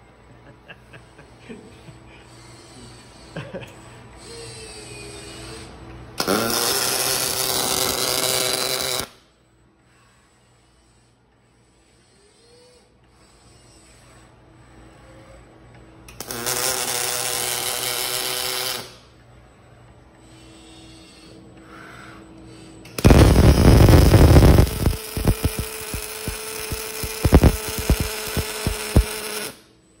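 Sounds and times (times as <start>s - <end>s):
welding arc crackling and popping: 6.2s - 9.1s, 16.2s - 19.0s, 23.0s - 29.6s
machine whir: 22.5s - 29.7s.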